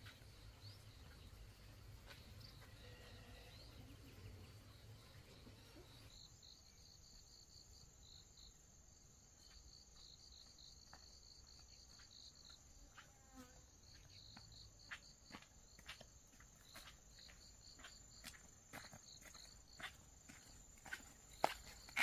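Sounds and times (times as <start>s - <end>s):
footsteps on stony dirt path: 0.0s - 3.2s, 9.4s - 13.1s, 13.8s - 22.0s
insects chirping: 0.0s - 22.0s.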